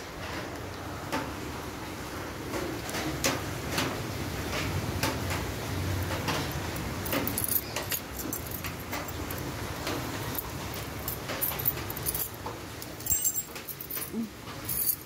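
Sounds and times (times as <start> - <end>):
light clicks and knocks: 2.5 - 15.0
keys jingling: 6.1 - 15.0.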